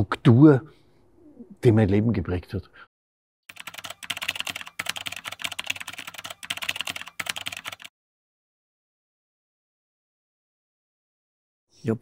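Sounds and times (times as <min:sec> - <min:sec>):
keyboard typing clicks: 0:03.5 - 0:07.9.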